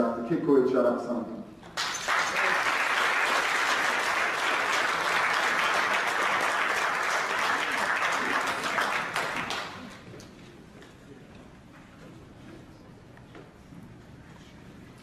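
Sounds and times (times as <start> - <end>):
audience applauding: 1.8 - 10.1.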